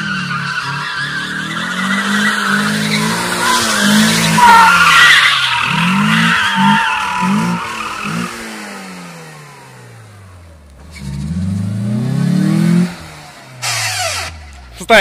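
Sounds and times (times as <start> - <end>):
tyres squealing: 0.0 - 8.4
car engine revving: 0.0 - 15.0.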